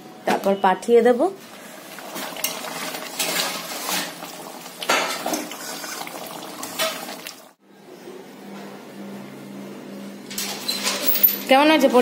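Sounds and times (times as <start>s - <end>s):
curry bubbling: 1.4s - 7.6s
metal spatula scraping a pan: 2.4s - 4.3s.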